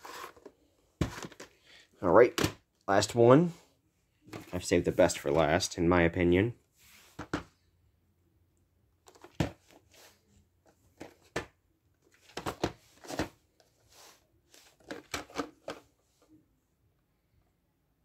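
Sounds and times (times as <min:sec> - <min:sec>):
plastic tape case clicks and rustles: 0:14.8 - 0:15.8.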